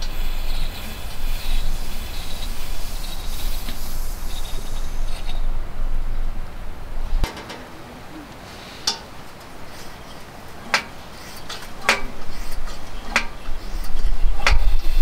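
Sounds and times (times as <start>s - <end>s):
lantern hissing: 0.0s - 15.0s
lantern preheater flame burning: 0.0s - 15.0s.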